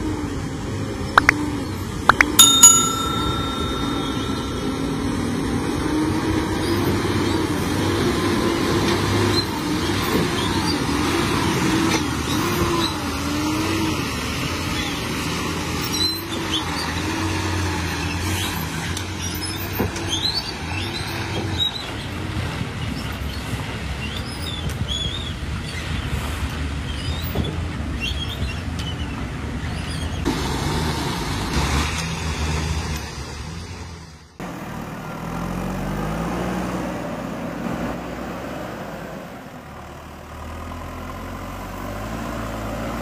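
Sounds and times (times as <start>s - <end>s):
bell-like ding: 2.1s - 6.7s.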